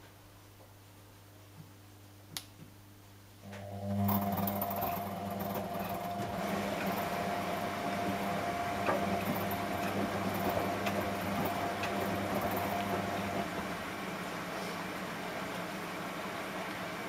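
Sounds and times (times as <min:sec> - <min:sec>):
washing machine motor hum and whine: 0:03.4 - 0:17.0.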